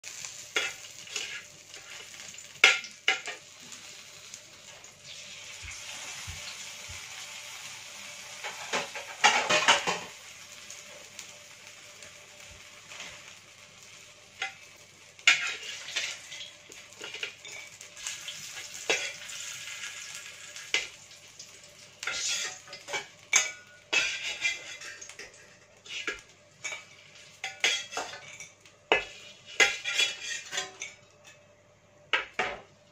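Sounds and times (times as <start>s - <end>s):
food sizzling in oil: 0.0s - 32.9s
spatula scraping metal wok: 0.6s - 2.4s, 15.2s - 19.8s, 22.0s - 30.9s.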